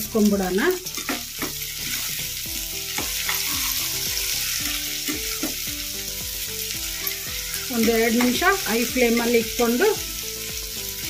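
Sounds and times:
cabbage sizzling in oil: 0.0s - 11.0s
steel spoon scraping pan: 2.9s - 5.7s, 6.8s - 9.4s.

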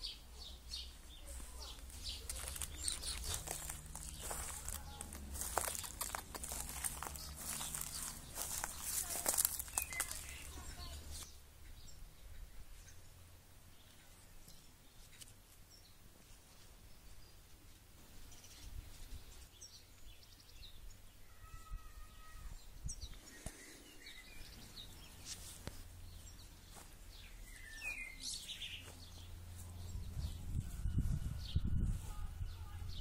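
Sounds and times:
small birds chirping: 0.0s - 30.7s
steady low rumble: 0.9s - 11.2s, 29.1s - 33.0s.

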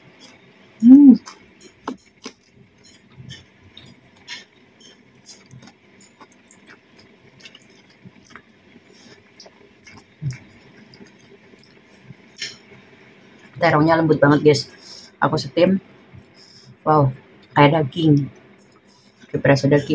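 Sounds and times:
person chewing food: 1.2s - 12.6s.

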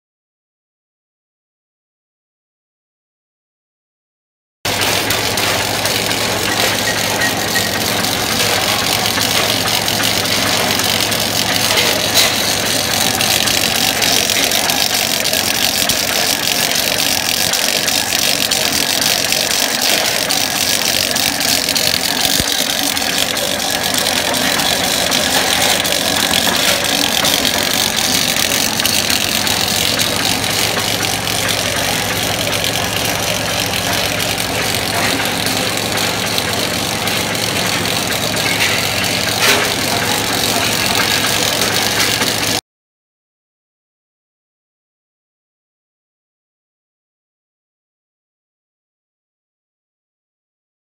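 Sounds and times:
low machine hum: 4.7s - 42.6s
punching press clatter: 4.7s - 42.6s.

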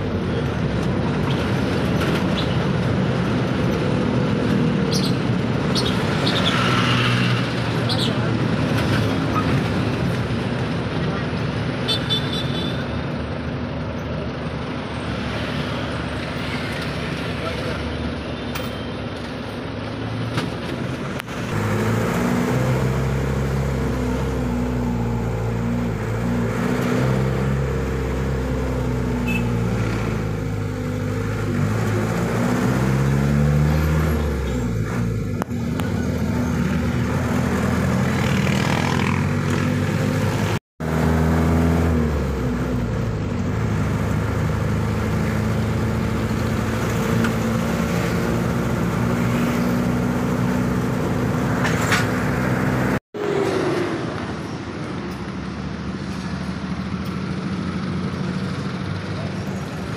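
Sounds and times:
vehicle engine accelerating: 21.2s - 54.6s.

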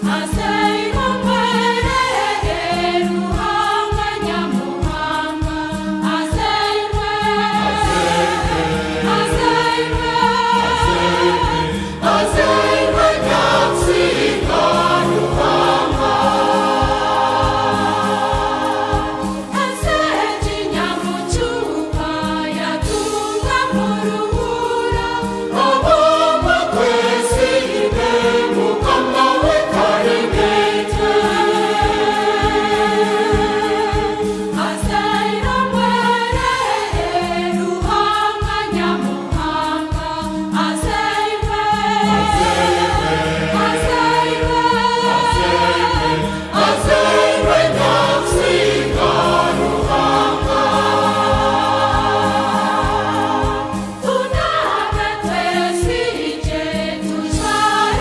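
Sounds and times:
choir singing a hymn: 0.0s - 58.0s
steady low beat: 7.4s - 19.3s.

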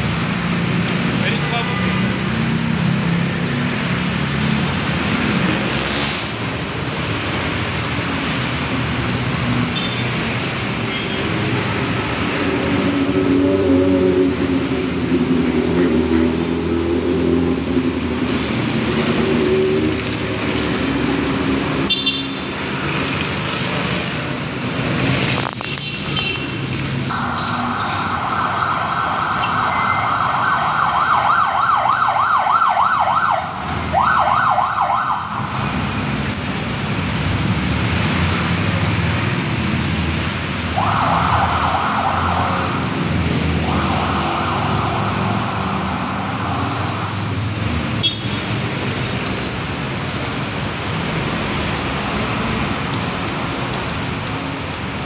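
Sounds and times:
street traffic noise: 0.0s - 55.0s
siren yelping: 27.1s - 35.6s, 40.8s - 47.2s.

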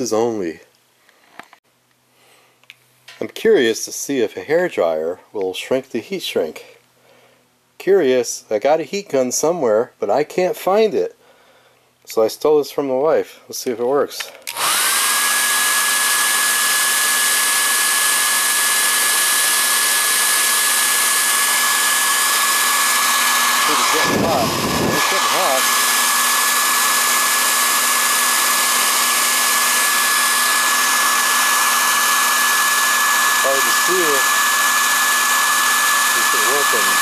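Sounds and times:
hair dryer blowing: 14.4s - 37.0s.

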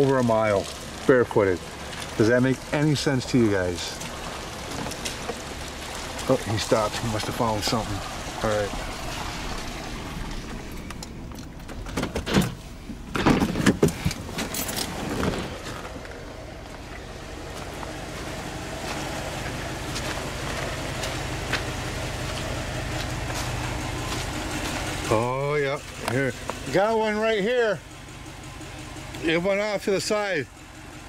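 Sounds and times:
vehicle engine idling: 0.0s - 31.0s
knocks and clatters: 10.4s - 16.2s.

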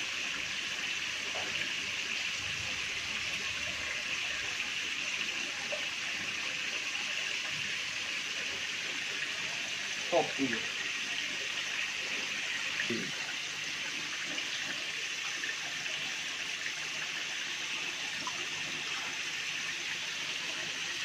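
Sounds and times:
water splashing into tanks: 7.4s - 20.8s.

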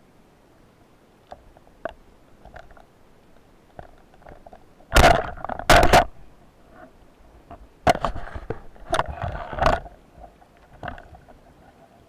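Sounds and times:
low underwater hiss: 6.1s - 12.0s.

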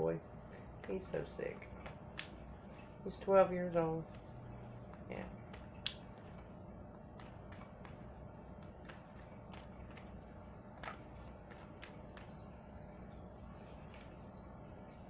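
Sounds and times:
cards being shuffled: 4.0s - 12.4s, 13.6s - 14.2s.

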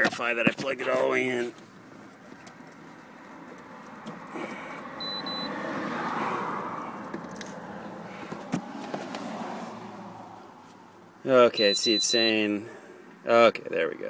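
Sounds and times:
short high beeps: 5.0s - 5.5s, 11.5s - 12.4s.

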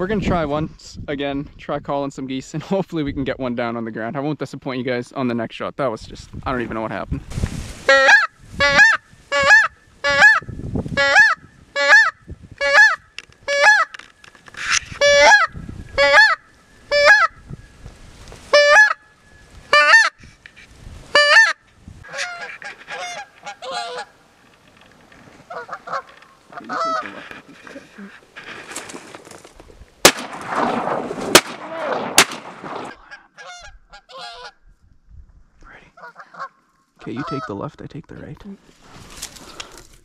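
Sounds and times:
goose call honks: 7.9s - 14.0s, 15.0s - 17.4s, 18.5s - 19.0s, 19.7s - 20.1s, 21.1s - 24.2s, 25.5s - 28.0s, 33.0s - 34.6s, 36.0s - 37.6s.

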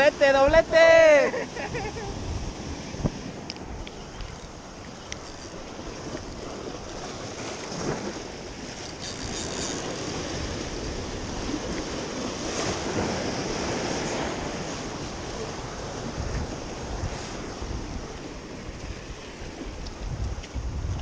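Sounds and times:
wind rumbling on microphone: 0.0s - 21.0s.

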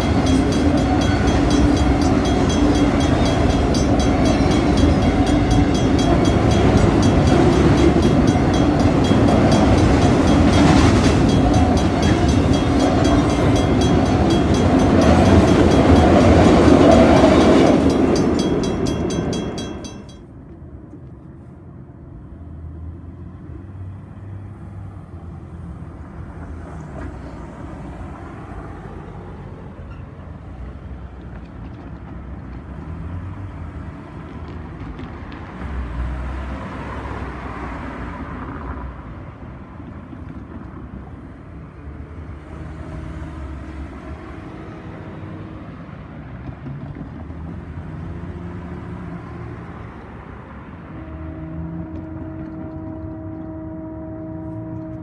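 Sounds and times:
road vehicle passing: 0.0s - 19.9s, 30.6s - 55.0s
crossing bell ringing: 0.0s - 20.4s
freight train rolling past: 0.0s - 20.8s.

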